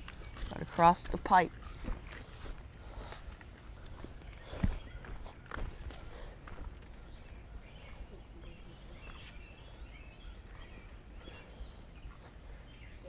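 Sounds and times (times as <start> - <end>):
faint bird chirps: 7.0 - 13.0.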